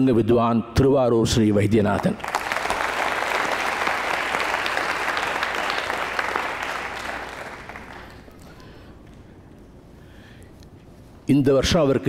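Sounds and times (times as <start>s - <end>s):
audience applauding: 2.0s - 8.9s.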